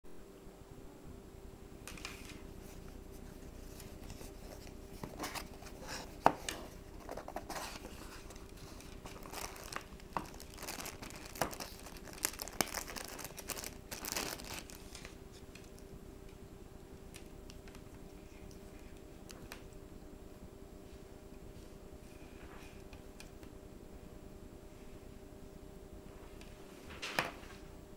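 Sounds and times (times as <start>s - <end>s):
faint steady hum: 0.1s - 27.9s
plastic bag crinkling and tearing: 6.9s - 15.8s.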